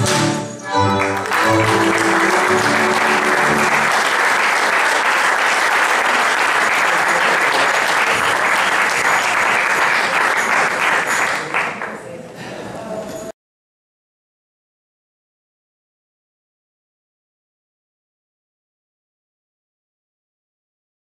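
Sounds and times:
folk band chord ringing: 0.0s - 4.0s
audience applauding: 0.7s - 12.2s.

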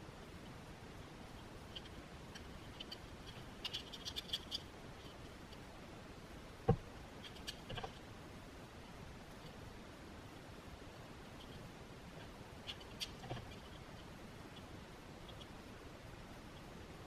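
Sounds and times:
tape crackling and scratching: 1.3s - 5.7s, 7.1s - 8.1s, 11.3s - 15.6s.

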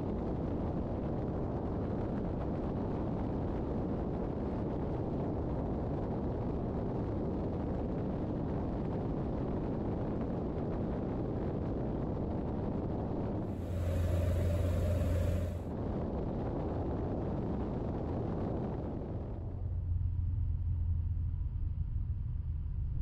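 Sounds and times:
wind rush: 13.5s - 15.6s
light aircraft engine drone: 13.5s - 15.7s.

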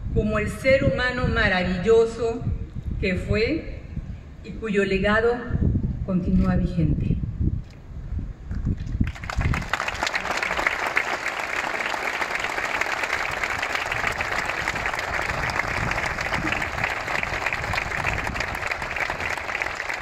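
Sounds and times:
crowd applauding: 9.0s - 20.0s.

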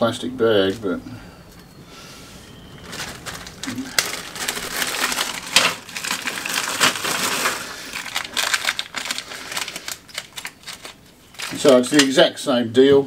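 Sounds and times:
plastic bag crinkling: 2.7s - 12.2s.

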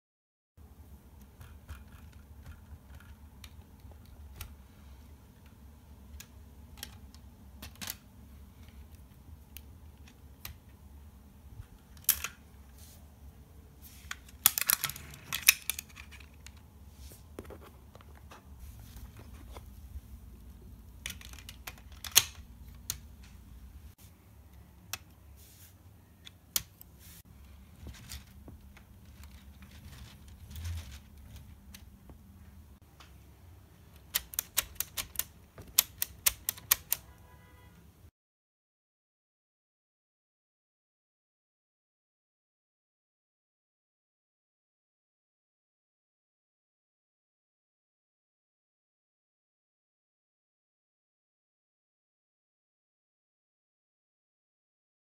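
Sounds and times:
low steady hum: 0.6s - 34.0s
plastic parts clicking: 1.2s - 4.6s, 5.3s - 10.8s, 11.6s - 12.5s, 14.0s - 16.7s, 20.8s - 23.4s, 26.2s - 27.0s, 27.8s - 32.0s, 33.9s - 37.1s.

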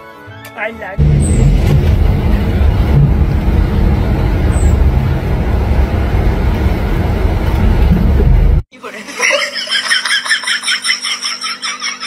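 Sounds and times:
bus engine and road rumble: 1.0s - 8.7s.

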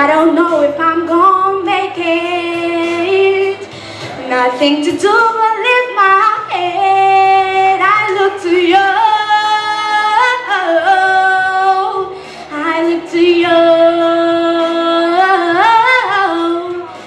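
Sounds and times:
woman singing: 0.0s - 17.0s.

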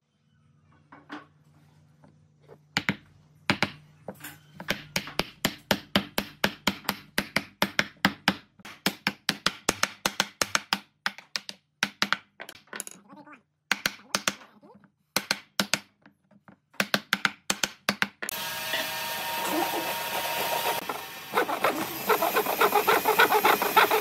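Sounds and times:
wooden mallet knocking wood blocks: 4.6s - 12.7s, 15.2s - 16.1s, 16.8s - 18.4s.

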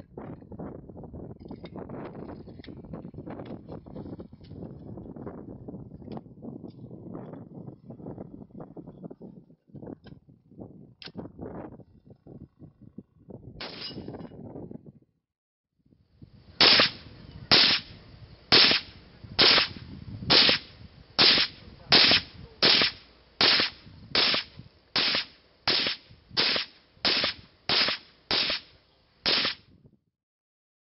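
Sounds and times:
rifle shots: 13.6s - 14.0s, 16.6s - 17.9s, 18.5s - 28.7s, 29.3s - 29.6s.

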